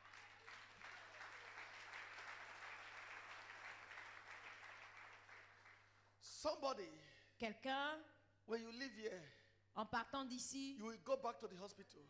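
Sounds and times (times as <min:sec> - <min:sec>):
distant congregation applauding: 0:00.0 - 0:06.1.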